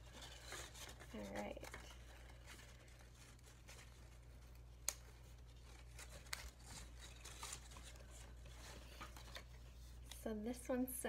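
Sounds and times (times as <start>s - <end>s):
paper rustling and crinkling: 0.0s - 10.2s.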